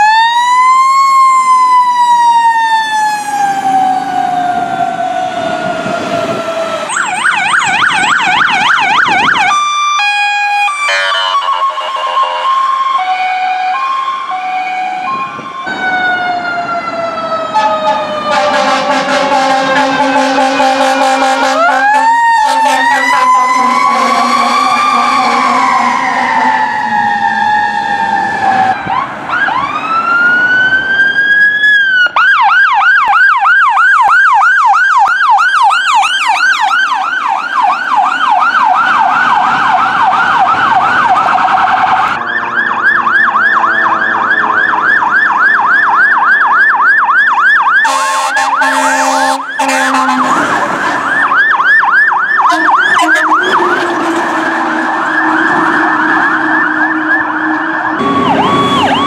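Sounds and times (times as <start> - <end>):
emergency vehicle siren: 0.0 - 59.0
low horn blasts: 10.9 - 12.6, 17.6 - 26.7, 47.8 - 50.4, 52.4 - 55.8.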